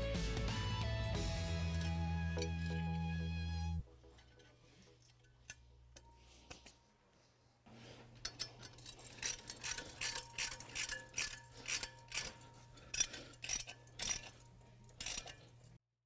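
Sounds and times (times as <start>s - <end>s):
socket ratchet clicking: 8.2s - 15.5s.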